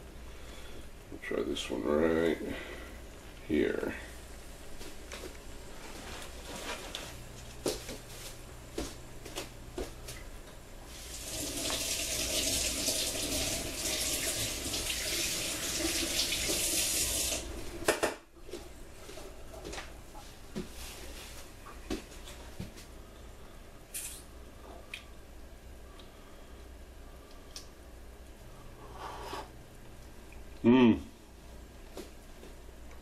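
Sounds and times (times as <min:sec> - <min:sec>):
faucet running water: 0:10.9 - 0:17.8.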